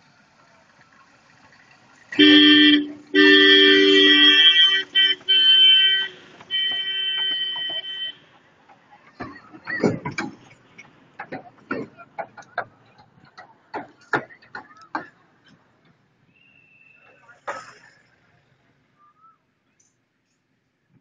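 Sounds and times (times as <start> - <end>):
toy train two-tone horn: 2.2 - 8.1.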